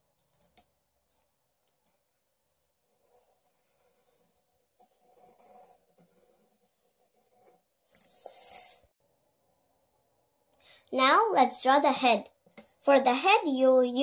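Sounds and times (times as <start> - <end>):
pencil scratching on paper: 2.5 - 9.0.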